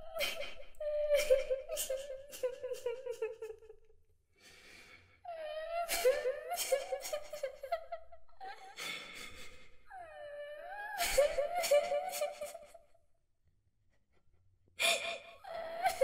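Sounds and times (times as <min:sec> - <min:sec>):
little girl crying: 0:05.3 - 0:07.6, 0:10.0 - 0:12.6.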